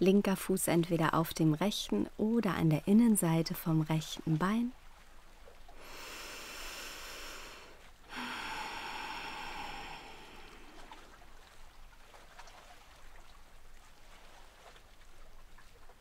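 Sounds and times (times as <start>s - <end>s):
person breathing: 5.8s - 11.1s.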